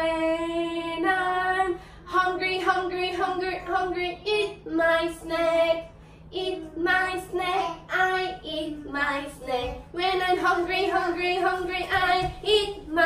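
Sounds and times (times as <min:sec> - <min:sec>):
woman singing: 0:00.0 - 0:13.0
child singing: 0:06.4 - 0:13.0.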